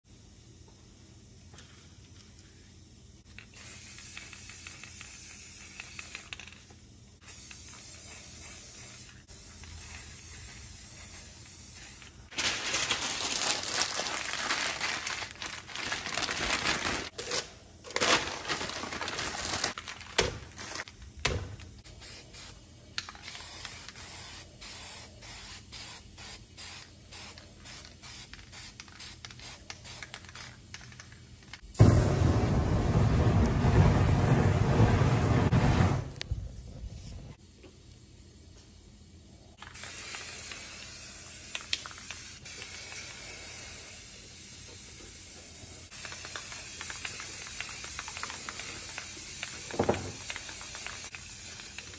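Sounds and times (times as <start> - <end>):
spray paint can hissing: 3.2 - 12.3, 21.8 - 34.2, 39.6 - 51.9.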